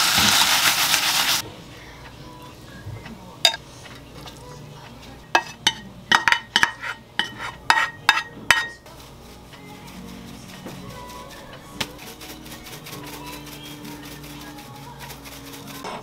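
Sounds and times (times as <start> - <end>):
pan knocking against ceramic dishes: 5.4 - 8.8.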